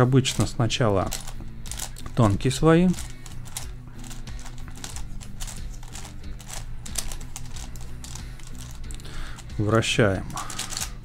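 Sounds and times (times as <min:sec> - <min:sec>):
plastic puzzle cube clicking: 0:01.1 - 0:02.2, 0:02.9 - 0:09.4, 0:10.5 - 0:11.0.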